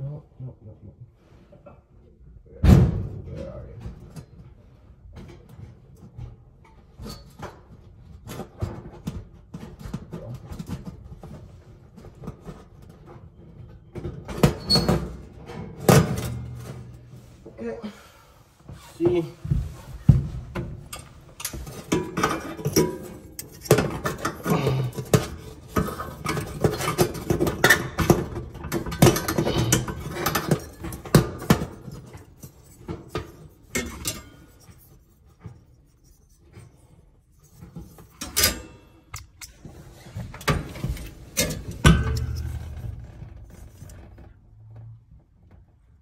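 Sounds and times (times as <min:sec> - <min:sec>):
oven igniter clicks and scrapes: 0:20.9 - 0:34.9, 0:40.3 - 0:44.0
wires pulled through metal: 0:20.9 - 0:44.4.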